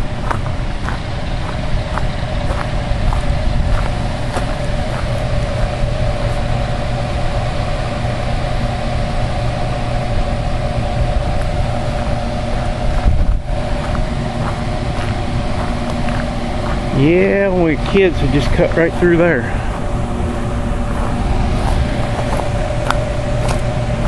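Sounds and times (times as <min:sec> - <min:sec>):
steady hum: 0:00.0 - 0:24.0
footsteps crunching on gravel: 0:00.2 - 0:06.5, 0:11.3 - 0:20.0, 0:20.9 - 0:24.0.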